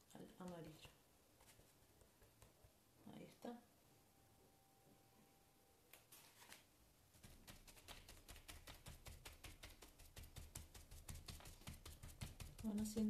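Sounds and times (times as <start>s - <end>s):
sponge tapping on paper: 7.2s - 13.0s.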